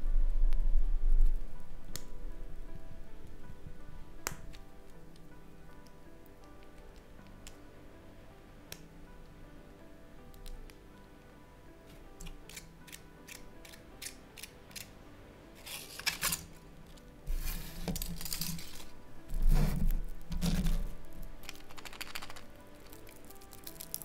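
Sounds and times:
soft background music: 0.0s - 24.0s
foil rustling: 15.6s - 16.7s, 17.3s - 24.0s.

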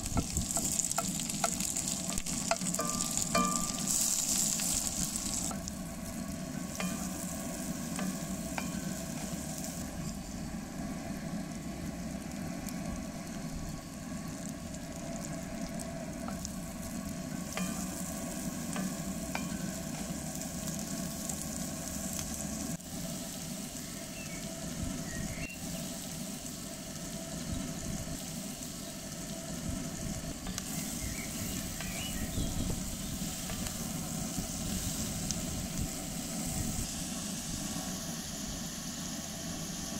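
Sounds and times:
vegetables sizzling in oil: 0.0s - 39.9s
spatula tapping and scraping pan: 0.1s - 5.6s.

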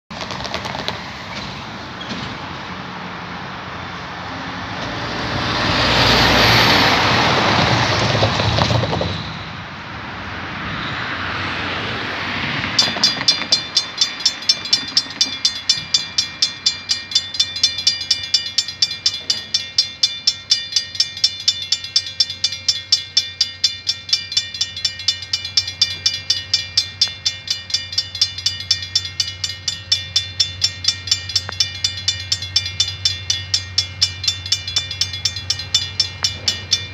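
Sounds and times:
car driving past: 2.4s - 9.0s
level crossing warning bell: 12.5s - 36.9s.

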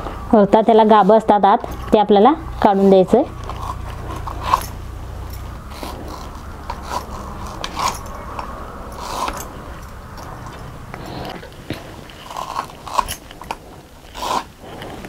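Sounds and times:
knife scraping: 2.6s - 15.0s.

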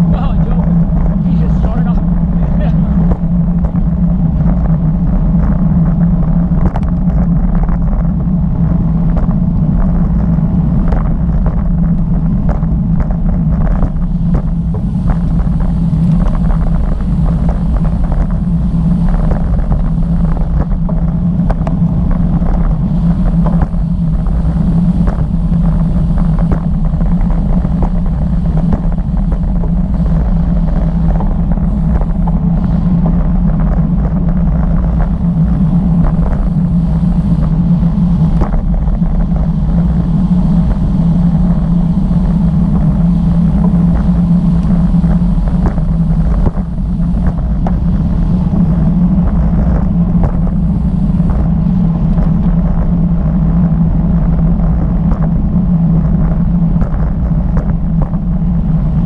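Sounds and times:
road rumble: 0.0s - 59.0s
wind noise: 0.0s - 59.0s.

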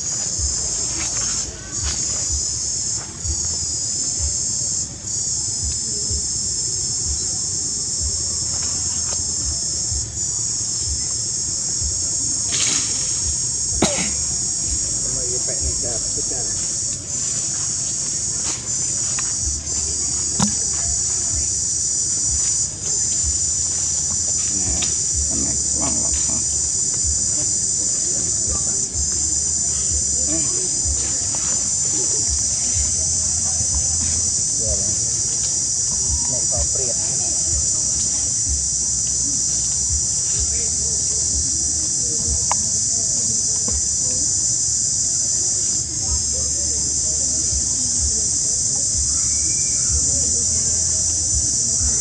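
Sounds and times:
insect chorus shrilling: 0.0s - 52.0s.

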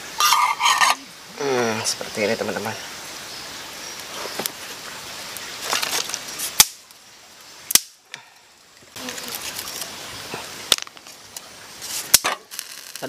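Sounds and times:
steady background hiss: 0.0s - 13.0s
dry sticks cracking in campfire: 5.3s - 7.0s, 7.7s - 8.2s, 10.6s - 13.0s.

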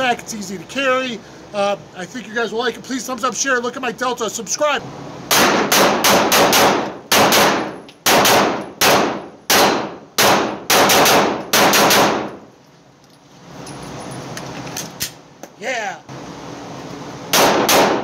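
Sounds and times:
pistol shots with echo: 5.3s - 12.3s, 17.3s - 18.0s.

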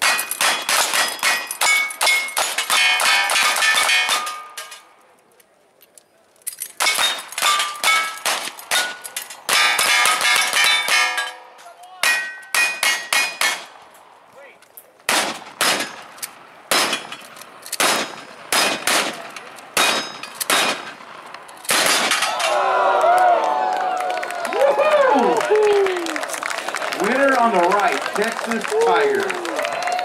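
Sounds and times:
steel targets clanging: 0.0s - 5.0s, 6.4s - 14.0s, 14.7s - 22.6s
rapid gunshots: 15.1s - 16.0s, 17.8s - 21.0s.

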